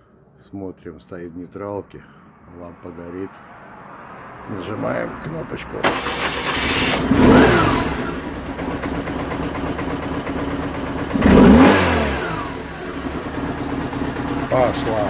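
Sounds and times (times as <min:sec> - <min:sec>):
motorcycle engine idling and revving: 0:04.6 - 0:15.0.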